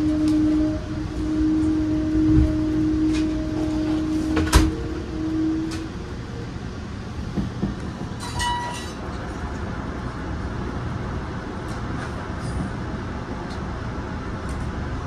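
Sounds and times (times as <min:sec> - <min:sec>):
low steady tones: 0:00.0 - 0:07.3
rumbling hum: 0:00.0 - 0:15.0.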